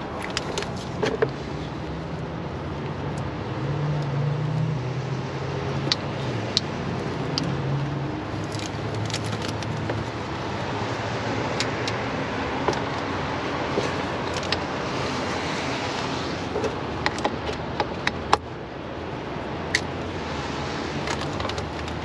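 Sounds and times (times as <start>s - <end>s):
steady rush of noise: 5.2s - 22.0s.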